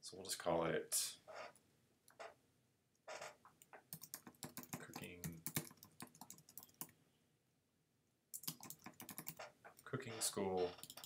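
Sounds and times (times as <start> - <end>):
keyboard typing: 3.6 - 7.0, 8.3 - 9.9, 10.6 - 11.0.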